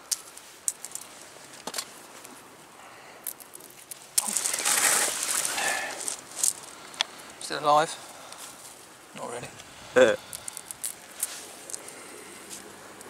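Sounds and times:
crab shell clicking and crackling: 0:00.1 - 0:01.1, 0:03.2 - 0:07.2, 0:10.2 - 0:12.0
loud rustle: 0:03.6 - 0:06.8.

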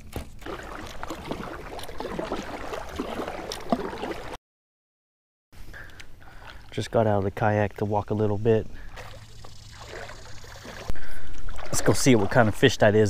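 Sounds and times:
water gurgling around a kayak: 0:00.4 - 0:04.4, 0:08.8 - 0:13.0.

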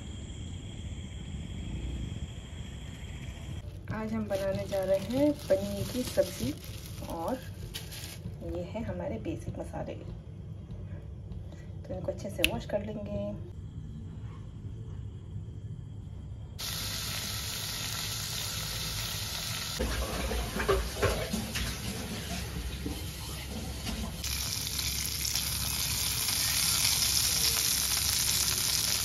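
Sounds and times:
vegetables knocking and clattering: 0:03.8 - 0:08.5
tap water running: 0:16.6 - 0:29.0.

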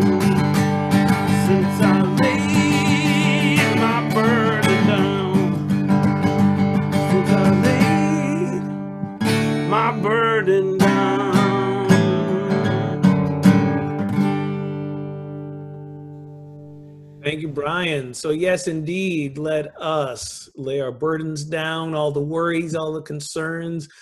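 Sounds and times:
acoustic guitar strumming: 0:00.0 - 0:18.0.

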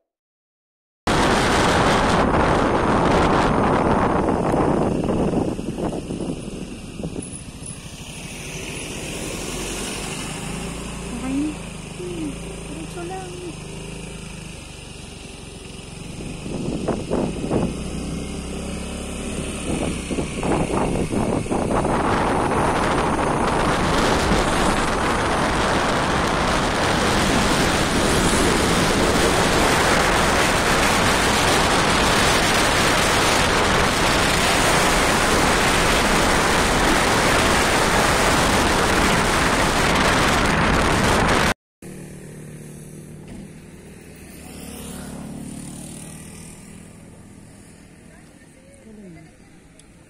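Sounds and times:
wind buffeting microphone: 0:01.1 - 0:07.8, 0:16.1 - 0:41.6
quiet outdoor background: 0:41.8 - 0:50.0.

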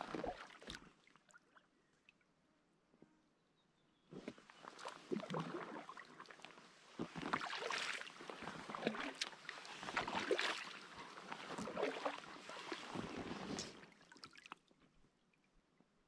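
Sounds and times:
paddle splashing in water: 0:00.0 - 0:01.4, 0:04.4 - 0:14.7.

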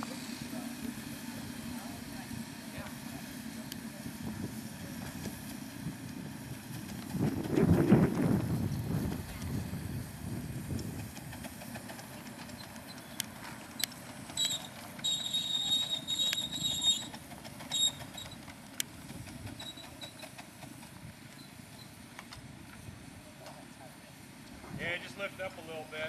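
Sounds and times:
train wheels rumbling on rails: 0:00.0 - 0:26.0
high thin squeal: 0:14.4 - 0:17.1.

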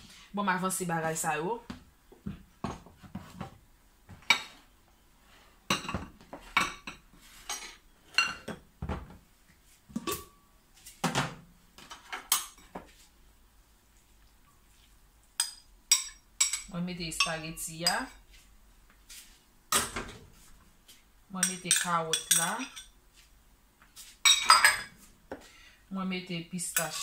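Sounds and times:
dishes and utensils clattering: 0:04.2 - 0:04.7, 0:05.7 - 0:09.2, 0:11.0 - 0:12.8, 0:21.4 - 0:23.0, 0:24.2 - 0:25.0.

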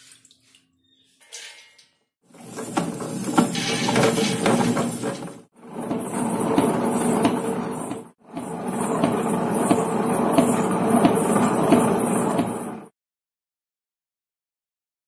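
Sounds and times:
wet grinder humming: 0:02.3 - 0:12.9.

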